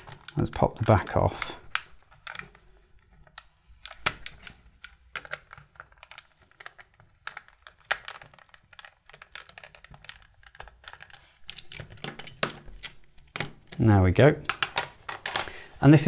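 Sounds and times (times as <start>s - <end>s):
plastic clicks and scrapes: 0.0s - 13.8s.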